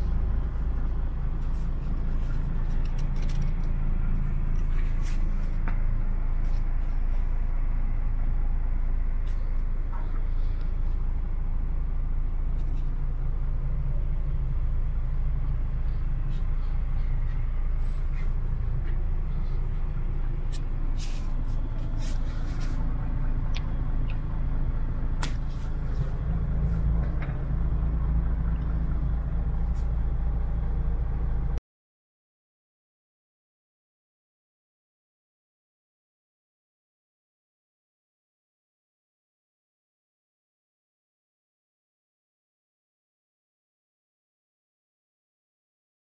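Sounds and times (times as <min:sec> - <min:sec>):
diesel truck engine idling: 0:00.0 - 0:31.6.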